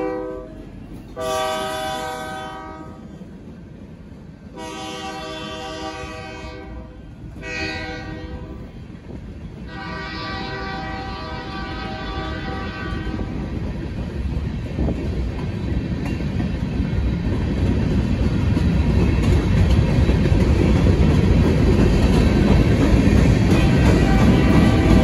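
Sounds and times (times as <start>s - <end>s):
locomotive air horn blasts: 0.0s - 0.6s, 1.2s - 3.0s, 4.5s - 8.7s, 9.7s - 13.3s
train wheels rumbling on rails: 0.0s - 25.0s.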